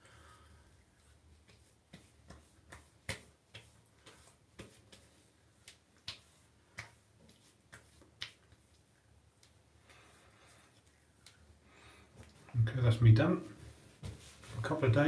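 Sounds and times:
hands patting skin: 0:00.7 - 0:12.5, 0:13.7 - 0:14.8.

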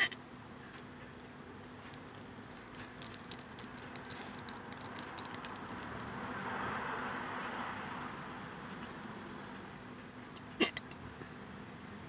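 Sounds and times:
person hiccuping: 0:10.6 - 0:10.9.

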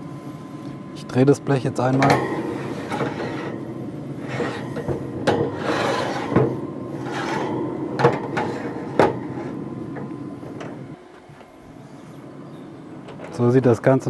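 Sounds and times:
baking sheet clanking: 0:01.8 - 0:11.5
baking sheet scraping on grates: 0:02.1 - 0:10.6.

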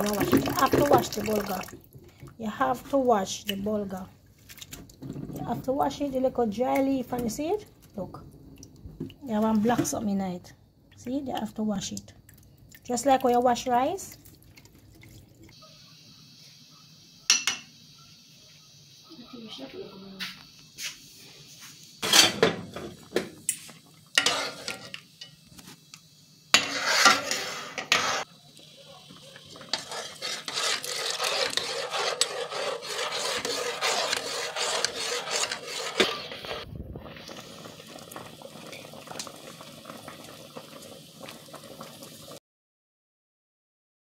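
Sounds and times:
water pouring through strainer: 0:00.0 - 0:01.8
pot boiling hiss: 0:00.0 - 0:42.4.

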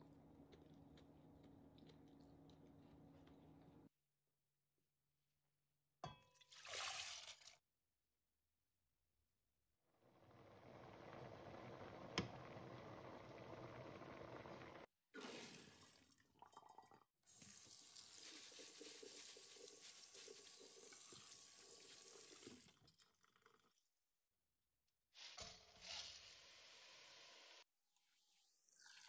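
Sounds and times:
tap water running onto beans: 0:17.3 - 0:22.8.

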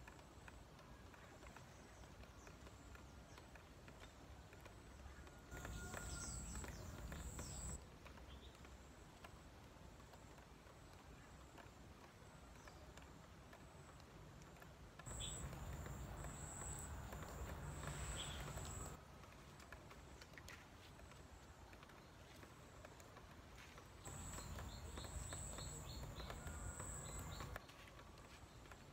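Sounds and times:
footsteps on dry dirt: 0:05.0 - 0:08.4, 0:15.0 - 0:28.9.

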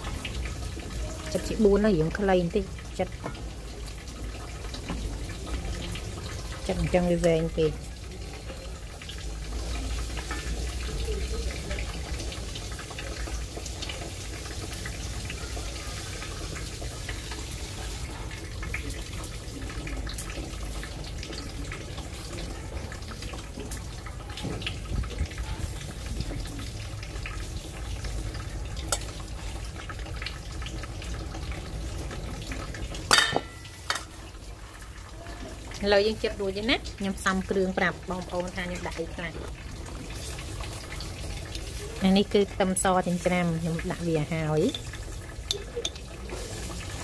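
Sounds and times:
knife clattering against steel bowl: 0:33.1 - 0:34.1.

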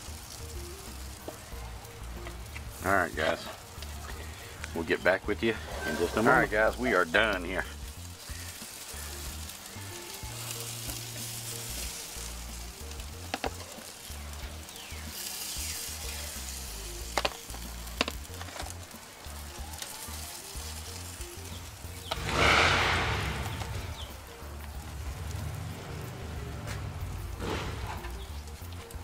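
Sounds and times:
chicken sizzling on a grill: 0:00.0 - 0:29.0
rush of noise: 0:22.1 - 0:24.0.

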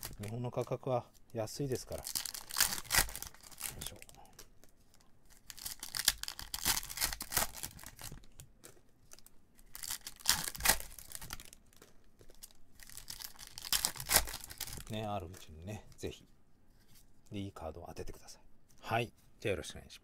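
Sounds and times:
foil wrapper tearing and crinkling: 0:01.7 - 0:04.1, 0:05.3 - 0:08.4, 0:09.1 - 0:14.9.

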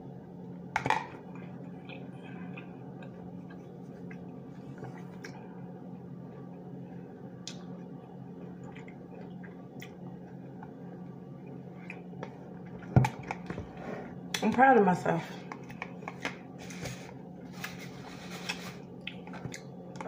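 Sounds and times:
steady low hum: 0:00.0 - 0:20.0
soft chewing: 0:01.2 - 0:05.7, 0:15.6 - 0:19.8.

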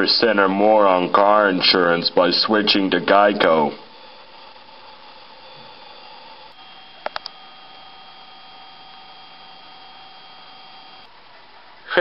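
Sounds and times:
faint hum and whine: 0:00.0 - 0:12.0
steady hiss: 0:00.0 - 0:12.0
quick clicks: 0:07.0 - 0:07.4.

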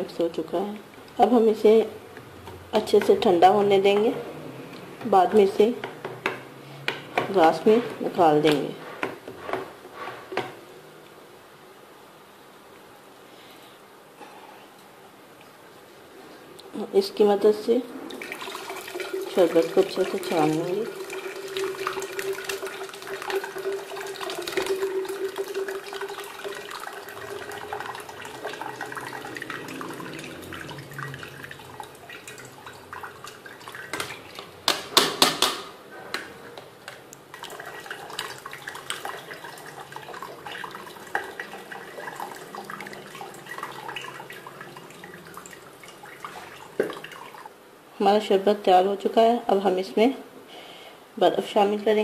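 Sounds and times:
pulp and juice pouring: 0:18.1 - 0:34.6, 0:37.2 - 0:47.5.

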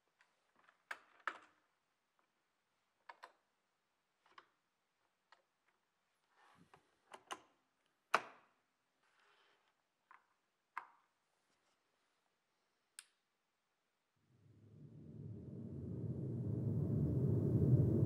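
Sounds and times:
small clicks and knocks of hands: 0:03.0 - 0:03.5, 0:10.0 - 0:11.1.

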